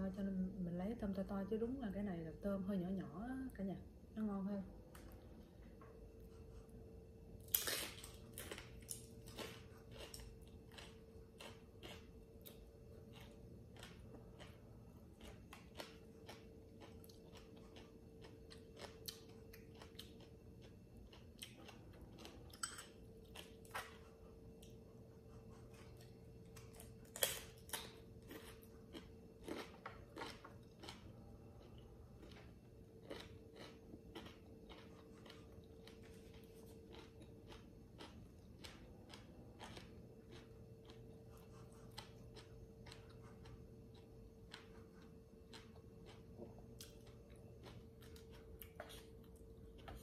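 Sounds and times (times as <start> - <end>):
person chewing crunchy cracker: 7.4 - 24.8, 25.5 - 50.0.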